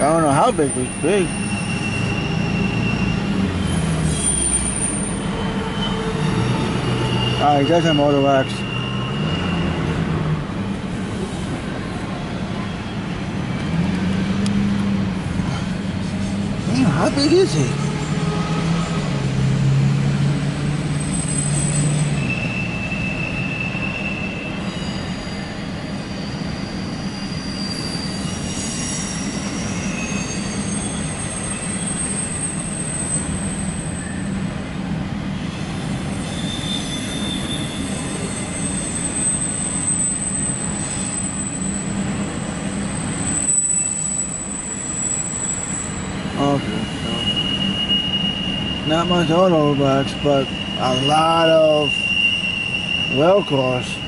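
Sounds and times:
train wheels squealing: 0.0s - 10.2s, 20.9s - 34.5s, 35.4s - 54.0s
freight train rumbling past: 0.0s - 54.0s.

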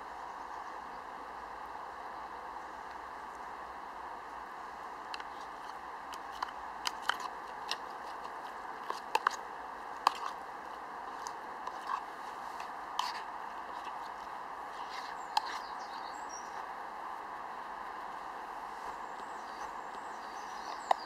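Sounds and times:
spoon scraping metal mug: 10.0s - 10.4s, 13.0s - 14.0s.

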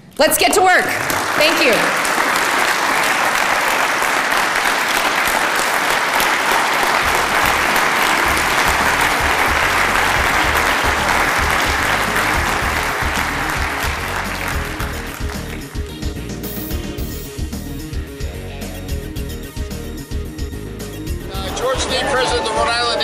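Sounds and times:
audience applauding: 0.9s - 16.8s, 21.3s - 23.0s
background music: 3.5s - 23.0s.

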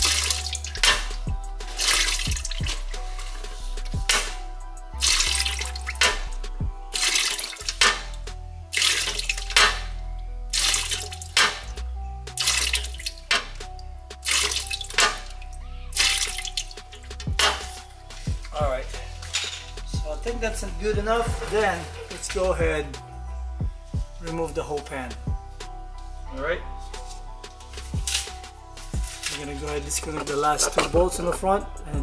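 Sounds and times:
fluid pouring and dripping: 0.0s - 3.4s, 5.0s - 6.3s, 6.9s - 8.1s, 8.7s - 9.8s, 10.5s - 11.6s, 12.4s - 13.6s, 14.2s - 17.7s
background music with steady beat: 0.0s - 32.0s.

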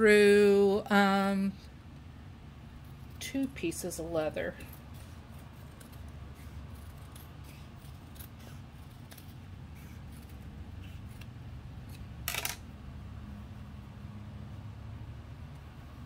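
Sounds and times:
scissors snipping: 5.4s - 12.0s.

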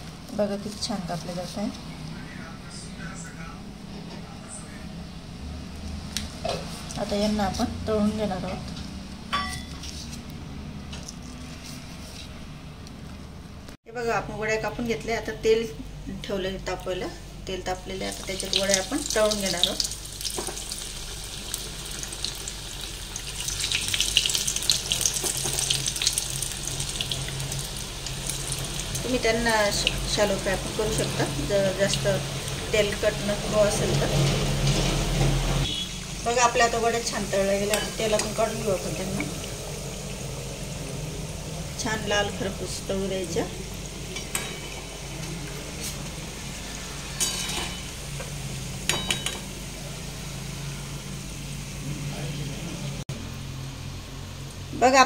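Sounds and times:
deep-frying sizzle and crackling: 0.0s - 2.6s, 4.2s - 13.3s, 14.5s - 55.0s
spatula clinking on metal: 9.3s - 9.8s, 44.1s - 44.9s, 47.2s - 48.0s, 48.9s - 49.5s.

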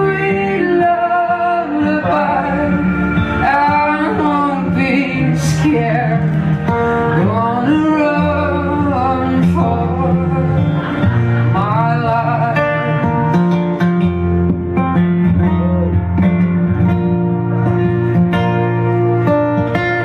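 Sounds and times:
man and woman singing: 0.0s - 6.4s, 7.1s - 13.0s
live band with guitars: 0.0s - 20.0s.

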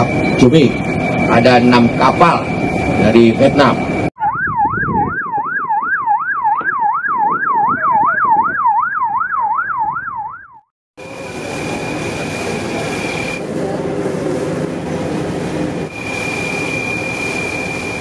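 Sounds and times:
mechanical noise with high whine: 0.0s - 5.8s, 11.0s - 18.0s
electronic siren yelping: 0.0s - 10.7s.

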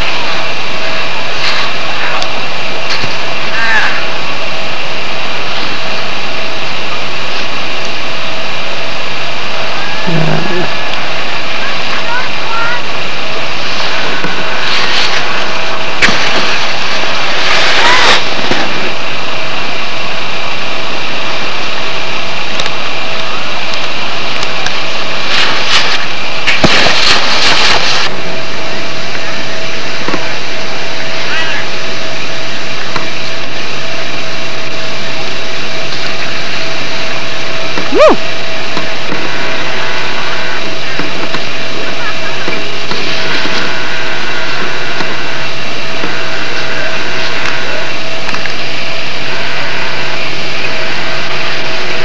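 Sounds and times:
loud steady rushing noise: 0.0s - 52.0s.

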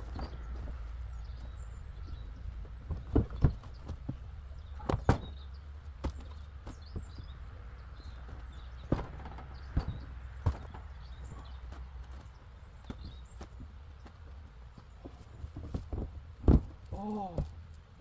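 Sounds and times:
knocks and thuds of objects handled: 0.0s - 17.6s.

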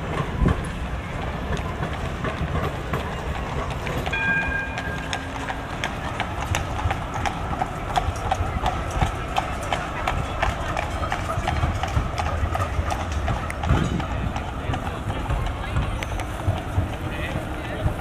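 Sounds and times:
horse hooves clip-clopping: 0.0s - 18.0s
street traffic rumble: 0.0s - 18.0s
brief ringing tone: 4.1s - 5.7s.

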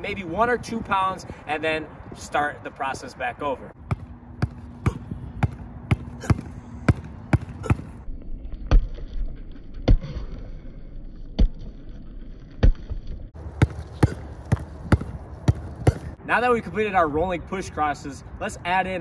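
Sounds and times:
basketball bouncing on concrete: 3.8s - 8.0s, 12.6s - 16.2s.

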